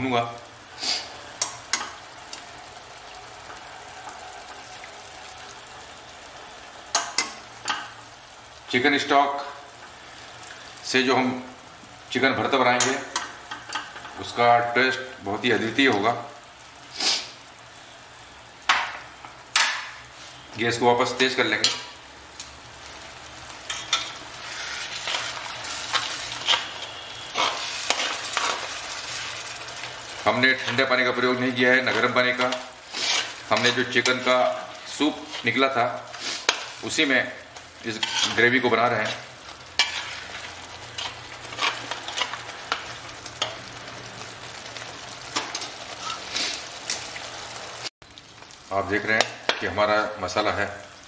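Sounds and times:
masala sizzling in a pan: 0:00.0 - 0:51.0
metal spatula scraping a pan: 0:23.7 - 0:30.0, 0:31.8 - 0:34.3, 0:35.1 - 0:36.8, 0:37.9 - 0:43.6, 0:45.4 - 0:46.7.

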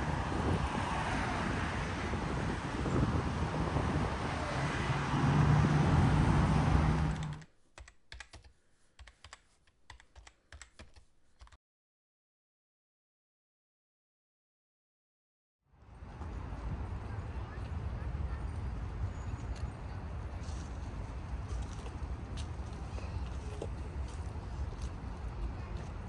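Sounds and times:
wind noise: 0:00.0 - 0:07.3, 0:15.9 - 0:26.0
low engine hum: 0:00.0 - 0:07.4
road traffic: 0:00.0 - 0:07.6, 0:15.7 - 0:26.0.

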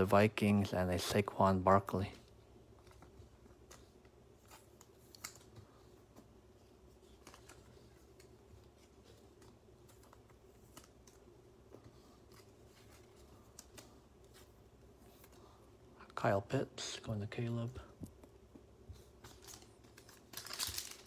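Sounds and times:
low room hum: 0:00.0 - 0:21.0
trading cards clicking and rustling: 0:02.7 - 0:14.5, 0:19.0 - 0:21.0.

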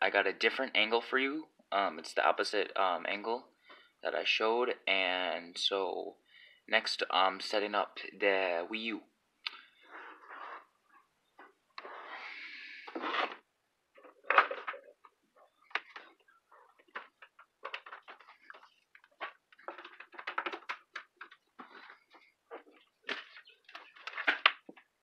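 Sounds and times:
cords rustling and scraping: 0:09.7 - 0:25.0
small clicks and knocks: 0:14.1 - 0:25.0.

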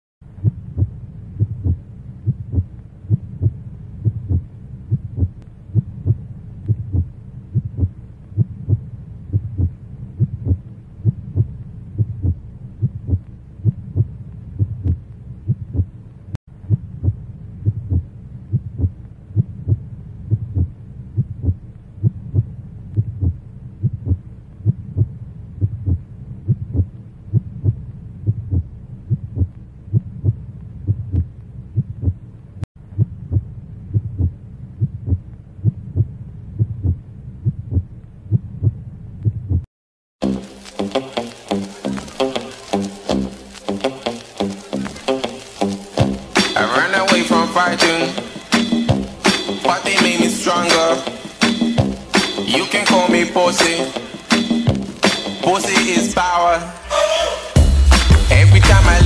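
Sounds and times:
faint low hum: 0:00.2 - 0:39.6
heartbeat double thump: 0:00.4 - 0:16.0, 0:16.6 - 0:32.2, 0:32.9 - 0:39.7.

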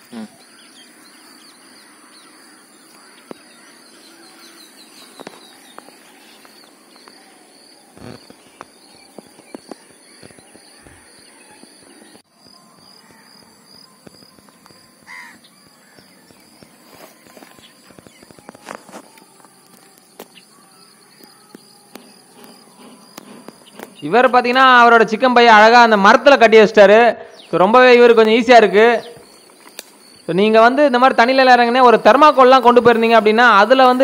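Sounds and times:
faint chirp: 0:00.0 - 0:24.8
high insect drone: 0:00.0 - 0:26.4, 0:27.4 - 0:34.0
birds calling: 0:00.0 - 0:34.0.

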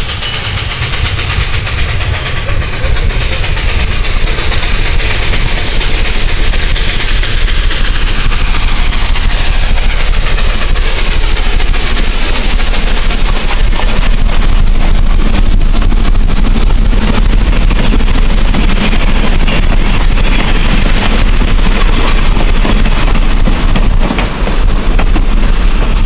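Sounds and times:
freight cars rolling on steel wheels: 0:00.0 - 0:06.8
steam locomotive running past: 0:00.0 - 0:26.0.

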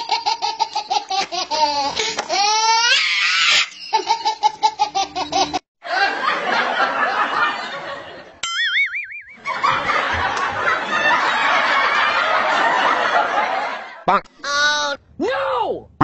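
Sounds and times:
high-pitched laughter: 0:00.0 - 0:06.2.

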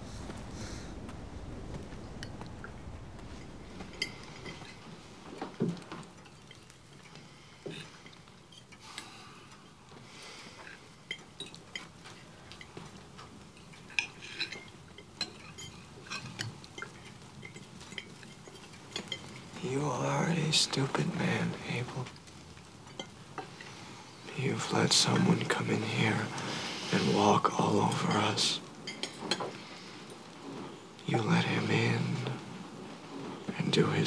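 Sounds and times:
low rumble: 0:00.0 - 0:06.3
cutlery clinking on plates: 0:10.5 - 0:19.6, 0:28.8 - 0:30.7.

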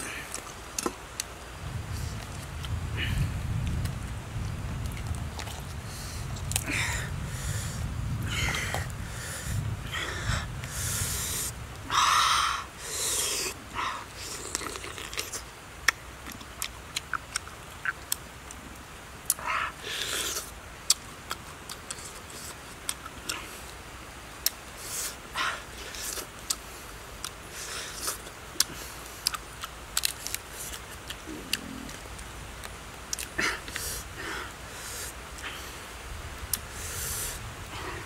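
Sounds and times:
chewing clicks and smacks: 0:14.4 - 0:18.6, 0:28.0 - 0:33.8.

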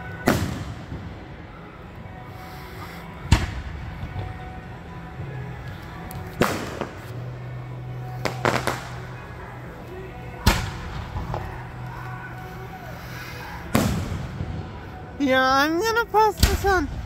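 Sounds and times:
fireworks bangs: 0:06.2 - 0:07.4, 0:08.1 - 0:09.5, 0:13.7 - 0:15.0.

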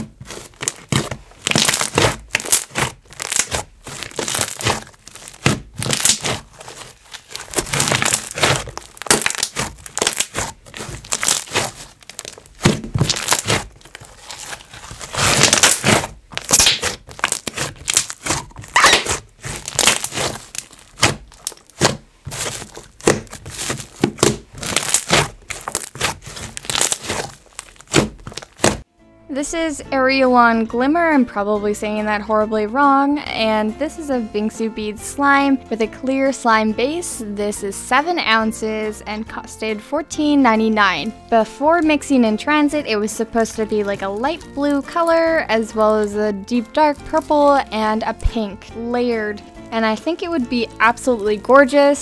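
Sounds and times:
slime squished by hand: 0:00.0 - 0:28.8.

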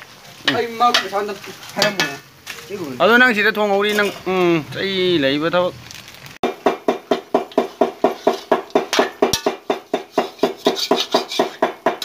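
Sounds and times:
metal ladle clanking against pan: 0:07.2 - 0:12.0.

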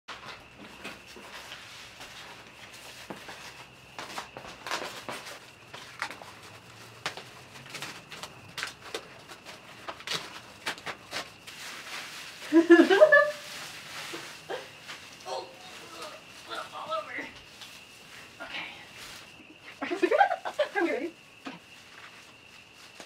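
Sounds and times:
plastic tarp shifting: 0:00.1 - 0:19.4
plastic wrap crinkling: 0:01.2 - 0:19.4.

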